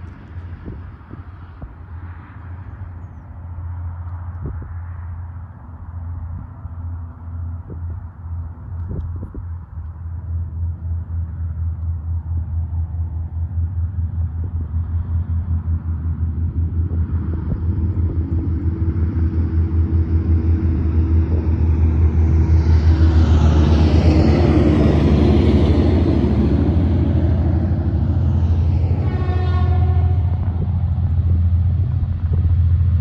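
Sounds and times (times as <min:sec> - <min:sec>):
locomotive engine rumble: 0:00.0 - 0:33.0.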